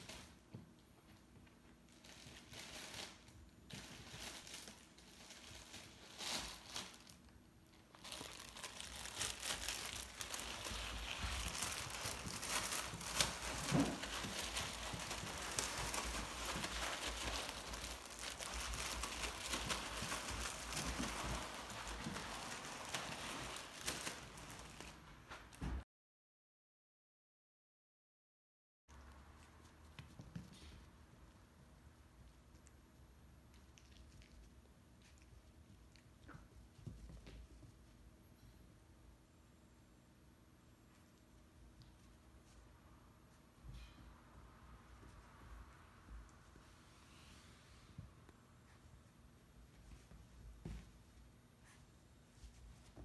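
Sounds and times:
plastic bag crinkling: 0:01.9 - 0:25.1.

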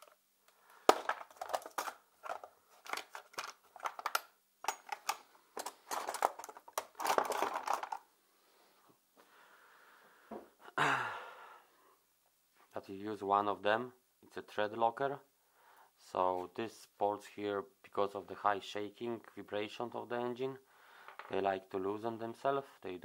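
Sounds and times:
metal tools clattering in toolbox: 0:01.0 - 0:08.0.

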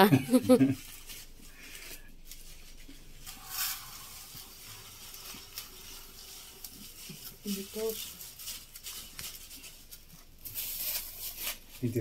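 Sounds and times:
plastic bag rustling: 0:00.0 - 0:12.0
sugar granules hissing into bowl: 0:00.6 - 0:09.6.

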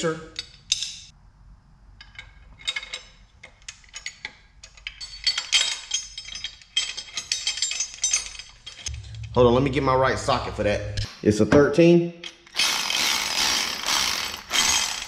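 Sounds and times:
bolts clinking on metal bracket: 0:02.0 - 0:09.3.

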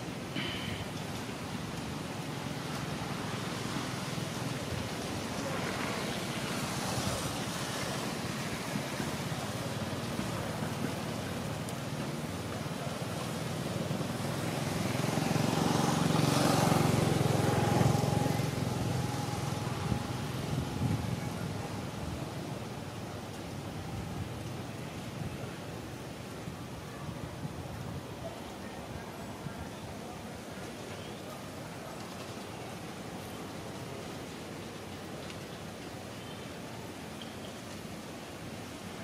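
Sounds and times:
outdoor background noise: 0:00.0 - 0:39.0
motor vehicle passing: 0:14.0 - 0:21.9.

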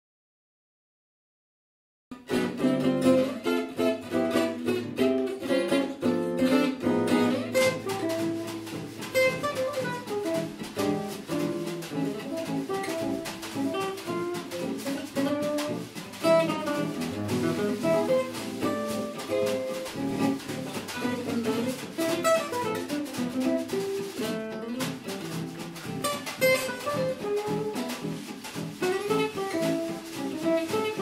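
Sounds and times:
acoustic guitar jazz melody: 0:02.1 - 0:31.0
snare drum keeping time: 0:02.2 - 0:31.0.

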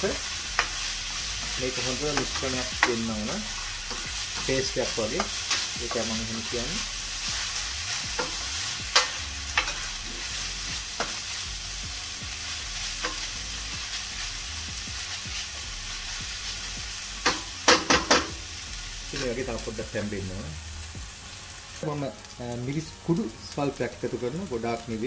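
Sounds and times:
onions sizzling in oil: 0:00.0 - 0:25.0.

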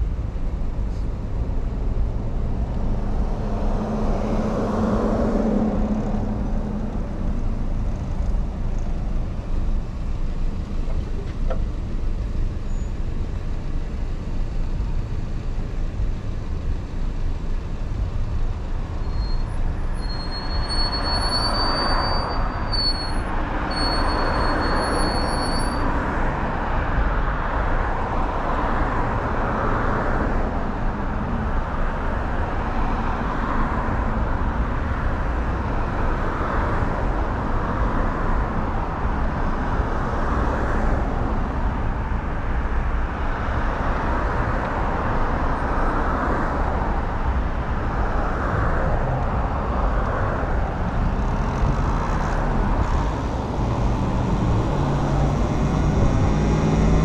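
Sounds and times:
tyre and road noise: 0:00.0 - 0:57.0
wind buffeting microphone: 0:52.7 - 0:57.0.

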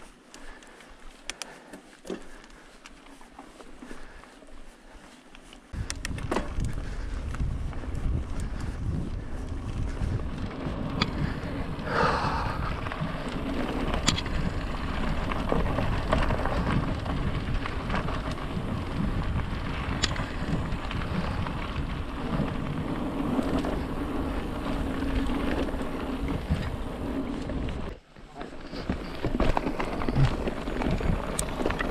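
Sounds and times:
bike rattling: 0:00.0 - 0:31.9
wind buffeting microphone: 0:05.7 - 0:28.0
tyres rumbling on dirt: 0:06.1 - 0:31.9.

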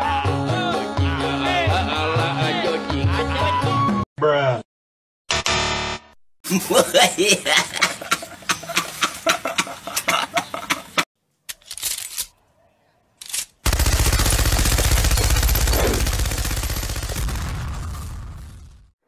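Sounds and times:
man laughing: 0:06.4 - 0:11.0
rapid machine-gun fire: 0:13.6 - 0:18.9.

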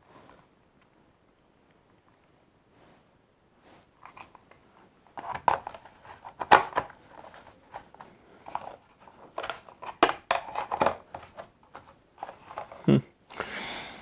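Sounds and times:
plastic parts clicking and knocking: 0:05.2 - 0:12.8.

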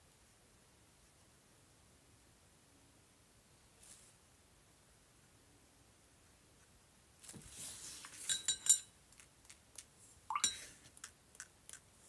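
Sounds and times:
glass clinking and rattling: 0:08.2 - 0:08.9, 0:10.3 - 0:10.8.

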